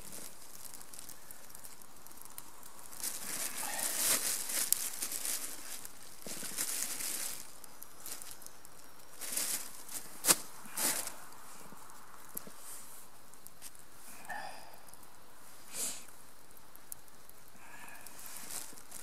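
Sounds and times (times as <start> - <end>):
plastic bag crinkling: 0.0 - 11.4, 17.8 - 19.0.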